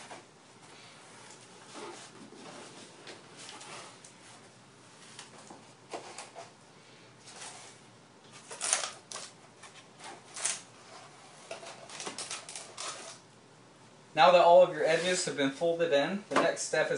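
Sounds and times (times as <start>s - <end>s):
cardboard rustling and scraping: 0.9s - 6.6s, 7.2s - 13.2s.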